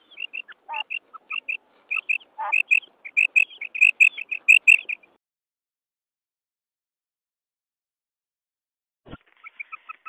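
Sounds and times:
quail chirping calls: 0.0s - 5.2s, 9.3s - 10.0s.

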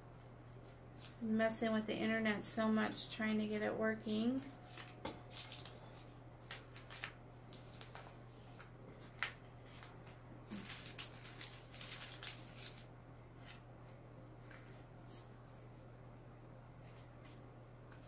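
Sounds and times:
paper rustling and scraping: 4.1s - 15.8s.

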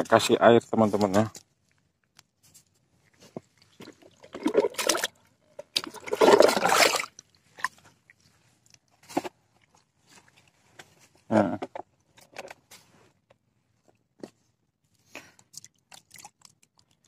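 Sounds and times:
short water splashes: 3.1s - 8.8s, 15.5s - 16.9s
bucket filling with splashing water: 3.6s - 7.8s.

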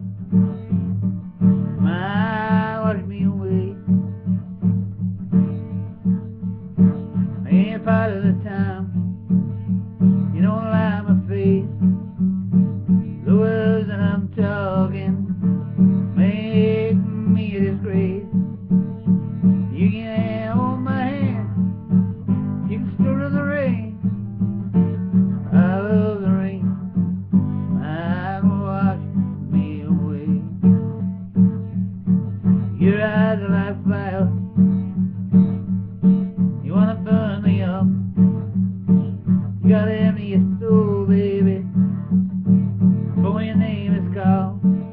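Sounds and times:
acoustic guitar strumming: 0.0s - 44.9s
man singing: 1.8s - 4.0s, 7.3s - 9.2s, 10.0s - 11.9s, 13.0s - 18.4s, 19.5s - 21.7s, 22.6s - 24.5s, 25.4s - 27.0s, 27.6s - 30.8s, 32.5s - 35.0s, 36.6s - 38.5s, 39.1s - 42.0s, 43.1s - 44.9s.

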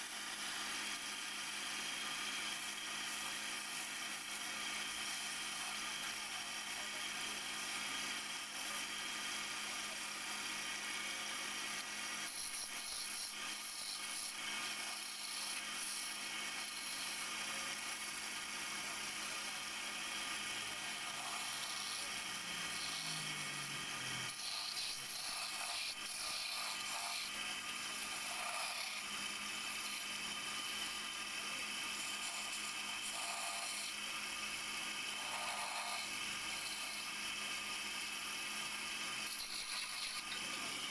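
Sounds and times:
wood lathe humming: 0.0s - 40.9s
turning tool scraping wood: 12.3s - 17.3s, 20.9s - 23.4s, 24.1s - 30.9s, 32.0s - 34.0s, 35.1s - 37.2s, 39.2s - 40.9s.

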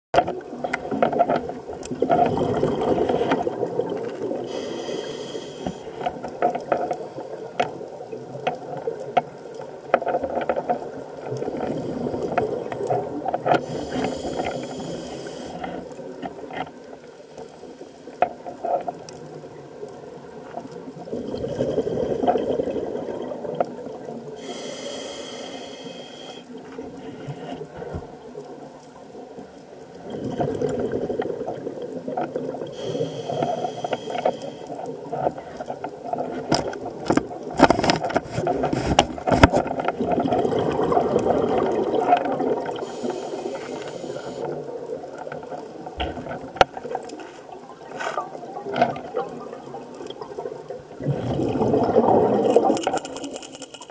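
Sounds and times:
bubbling exhalation underwater: 2.0s - 4.2s, 21.1s - 23.6s, 30.0s - 32.7s, 40.0s - 42.9s, 49.0s - 52.8s
diver breathing through regulator: 4.4s - 6.1s, 13.6s - 16.0s, 24.4s - 27.7s, 32.7s - 34.8s, 42.8s - 44.6s.

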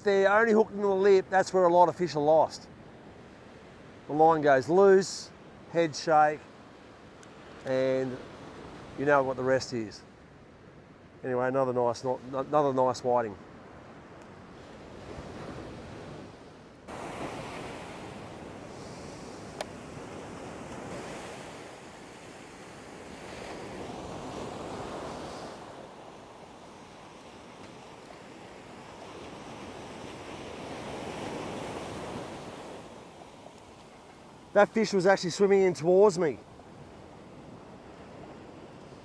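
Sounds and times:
ocean surf breaking: 3.6s - 6.4s, 14.5s - 39.0s.

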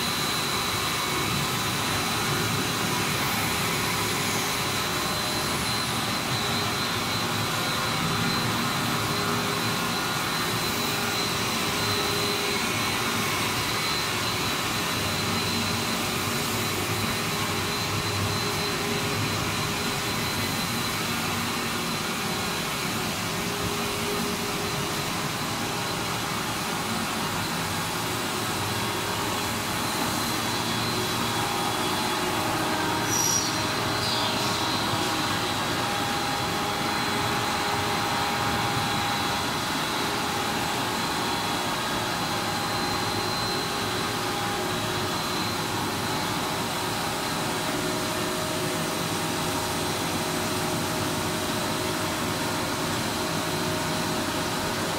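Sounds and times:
machinery hiss and hum: 0.0s - 54.9s
thin high whine: 0.0s - 54.9s
brief high squeak: 33.1s - 34.3s.

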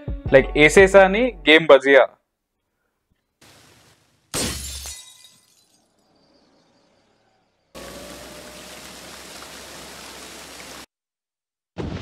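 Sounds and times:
heavy rain: 7.8s - 10.9s.

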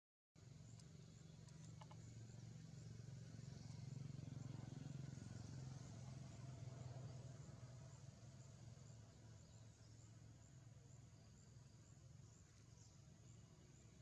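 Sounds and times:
distant motor engine drone: 0.4s - 11.1s.

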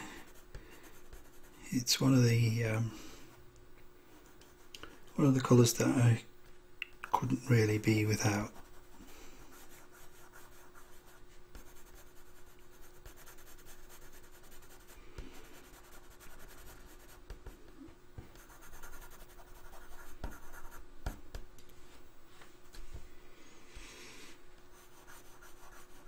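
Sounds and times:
pencil scratching on paper: 0.3s - 1.6s, 8.4s - 17.6s, 18.3s - 21.2s, 24.7s - 26.0s.

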